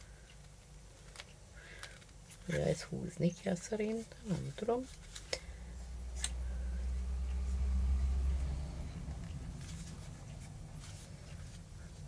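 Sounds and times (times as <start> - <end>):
vehicle passing rumble: 5.8 - 11.6.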